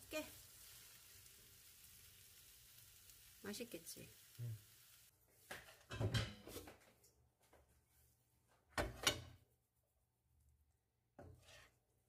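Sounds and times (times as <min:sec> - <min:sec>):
spoon scraping a wok: 0:11.2 - 0:11.8.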